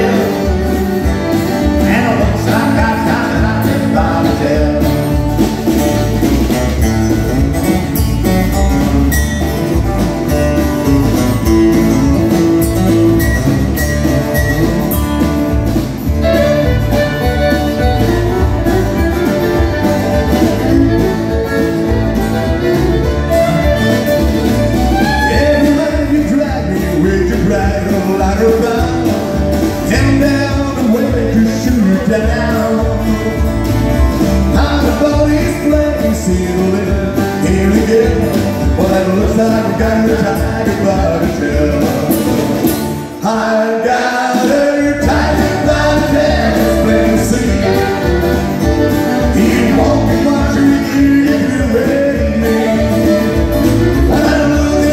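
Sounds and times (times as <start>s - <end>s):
man singing: 0.0s - 5.2s, 25.0s - 54.9s
strummed acoustic guitars: 0.0s - 54.9s.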